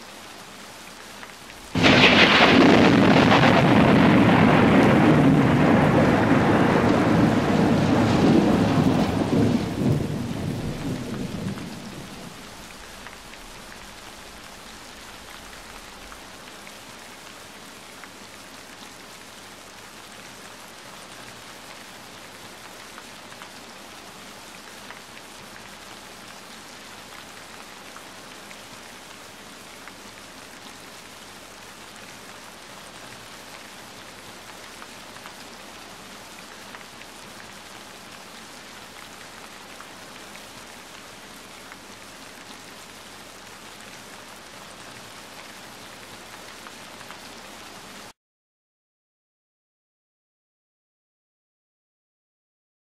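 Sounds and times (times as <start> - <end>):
heavy rain on foliage: 0.0 - 48.2.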